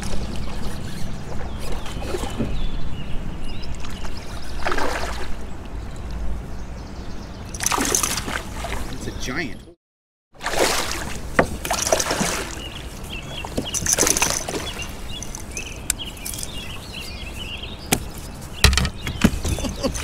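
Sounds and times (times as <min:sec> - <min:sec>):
water splashing and sloshing: 0:00.0 - 0:02.8, 0:03.6 - 0:06.4, 0:07.5 - 0:09.1, 0:10.4 - 0:20.0
sharp knocks: 0:17.9 - 0:19.7.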